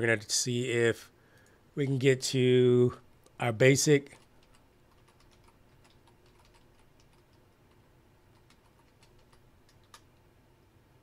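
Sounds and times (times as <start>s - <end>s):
computer keyboard keystrokes: 4.1s - 10.1s.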